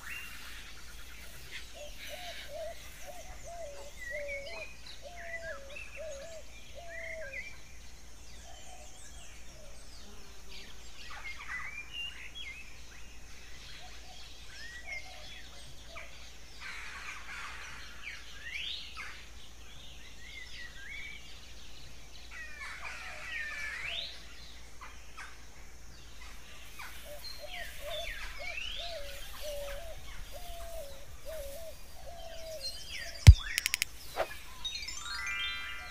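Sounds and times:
birds chirping and whistling: 1.7s - 7.4s, 27.1s - 35.9s
bird warbling calls: 27.3s - 35.0s
loud sharp click: 33.3s - 34.3s.

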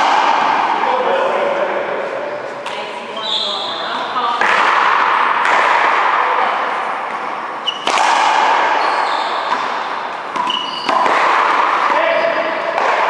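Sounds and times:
racquetball hitting wall: 0.0s - 1.0s, 4.4s - 13.0s
noisy hall background: 0.0s - 13.0s
sneakers squeaking on court: 2.3s - 4.1s, 7.6s - 12.7s.

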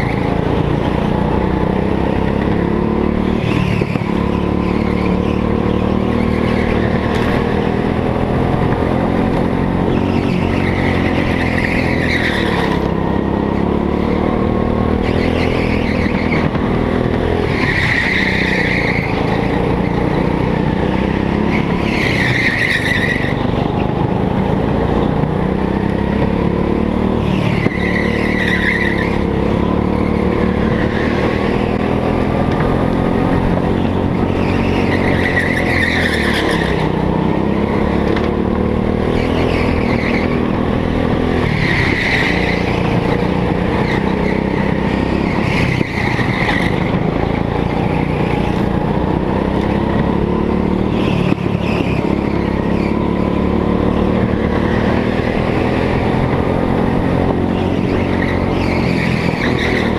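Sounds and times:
go-kart engine running hard: 0.0s - 59.9s
tyres squealing: 27.1s - 32.2s, 33.7s - 37.8s.

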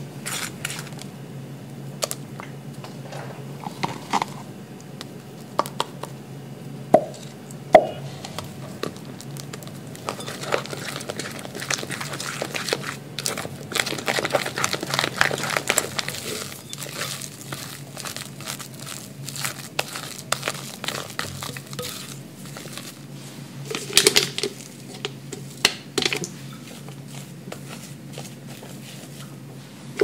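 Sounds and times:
plastic piping bag crinkles: 8.7s - 23.1s
spatula folding cream in glass bowl: 10.0s - 23.1s, 26.4s - 29.4s.

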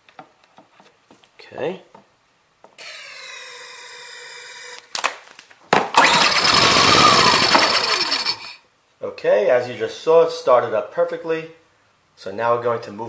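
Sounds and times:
engine pull-started and running: 6.0s - 8.6s.

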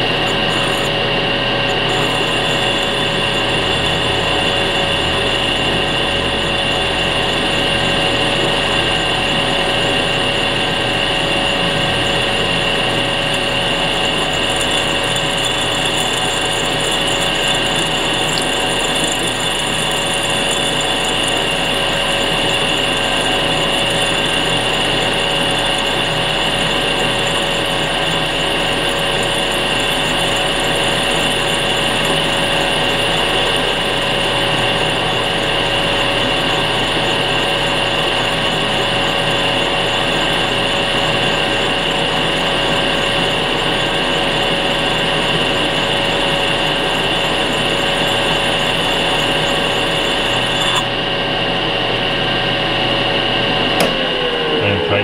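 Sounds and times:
lathe whining: 0.0s - 55.0s
cutter scoring glass: 50.1s - 50.8s.

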